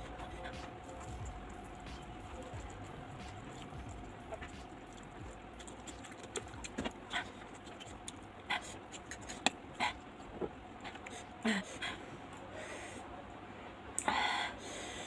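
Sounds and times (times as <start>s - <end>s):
chewing and slurping noodles: 0.0s - 11.1s
wet smacks: 3.2s - 8.2s.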